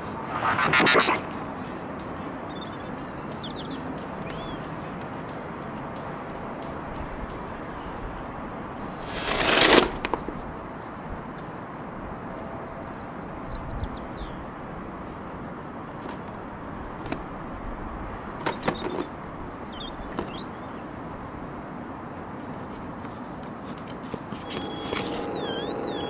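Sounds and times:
wind rushing: 0.0s - 1.4s
distant traffic: 0.0s - 26.0s
small birds chirping: 1.7s - 6.0s, 12.2s - 14.4s, 18.4s - 20.9s, 24.4s - 26.0s.

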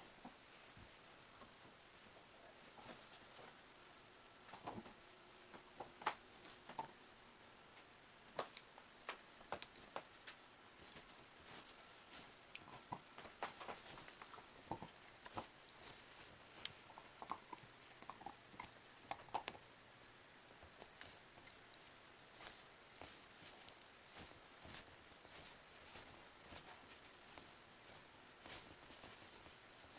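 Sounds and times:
fabric rustling: 10.2s - 17.4s, 20.8s - 29.9s.

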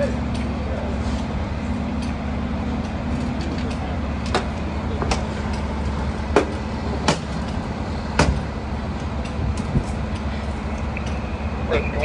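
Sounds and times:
fire truck engine idling: 0.0s - 12.0s.

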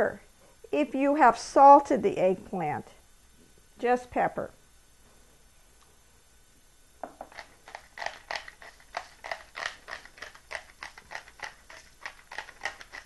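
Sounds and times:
pepper mill grinding: 7.0s - 13.0s.

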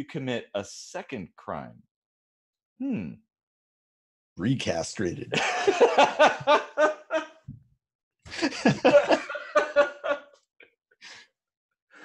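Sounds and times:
men laughing: 5.3s - 7.4s, 8.3s - 10.4s.

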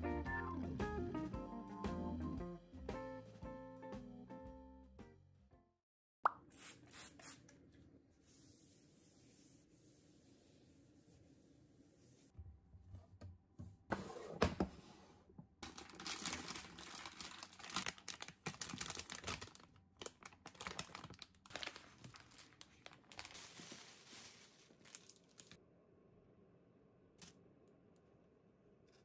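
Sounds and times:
plastic bags crinkling: 15.6s - 25.6s.

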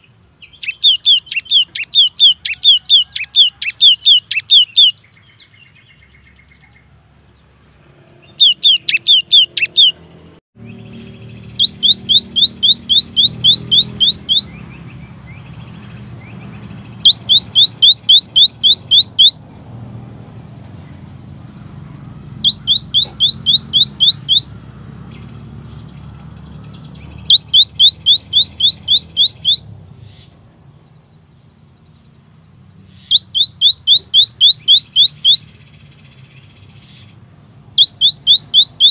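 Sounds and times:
bird singing whistled notes: 0.0s - 38.9s.

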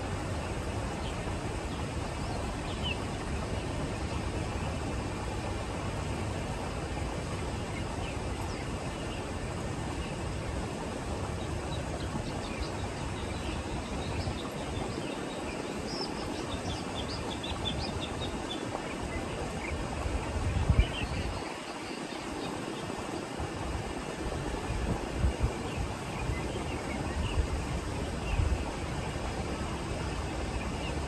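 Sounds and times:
open-air background noise: 0.0s - 31.0s.

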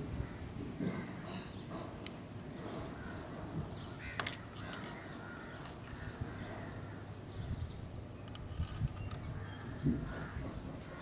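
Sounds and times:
bird calls: 0.2s - 11.0s
wires clicking: 4.0s - 7.1s.

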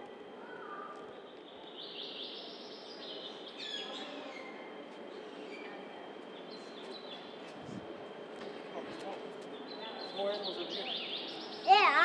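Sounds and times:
background murmur: 0.0s - 12.0s
small birds chirping: 9.5s - 12.0s.

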